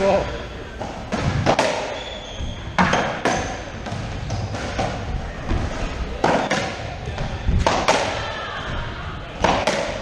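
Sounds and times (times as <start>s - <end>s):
racquet striking ball: 0.8s - 2.1s, 2.7s - 5.1s, 6.2s - 8.2s, 9.4s - 10.0s
ball hitting walls and floor: 0.8s - 8.3s, 9.4s - 10.0s.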